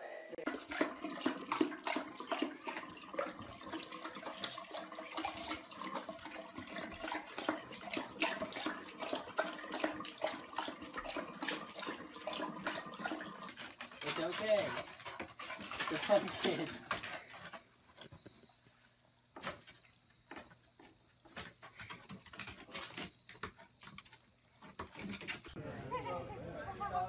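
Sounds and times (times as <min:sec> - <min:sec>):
faucet water running into basin: 0:00.4 - 0:17.1
dog lapping water: 0:00.4 - 0:17.5.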